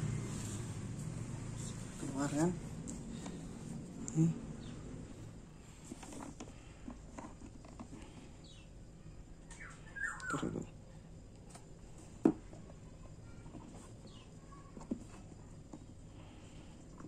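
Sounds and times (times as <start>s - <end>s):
faint high chirps: 8.4s - 10.6s.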